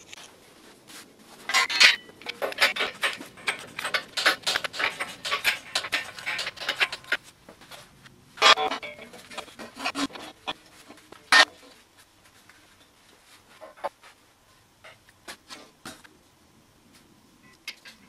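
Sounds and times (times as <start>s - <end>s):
metal ringing: 1.5s - 7.2s, 8.4s - 10.6s
metal tools clinking and rattling: 1.5s - 7.2s, 8.4s - 11.6s.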